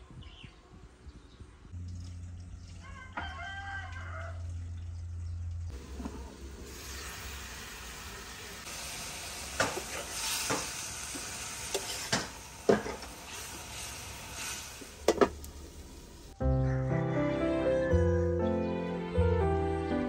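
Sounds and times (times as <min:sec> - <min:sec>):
vegetables sizzling in a wok: 0:05.7 - 0:16.4.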